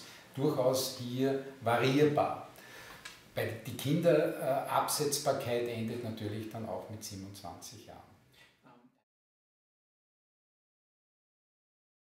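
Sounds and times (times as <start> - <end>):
man speaking: 0.3 - 2.6, 3.4 - 8.2.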